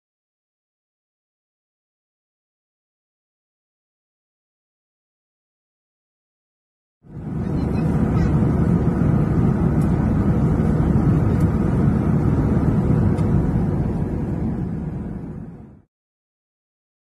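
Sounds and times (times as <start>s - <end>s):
jet airliner cabin rumble: 7.1s - 15.9s.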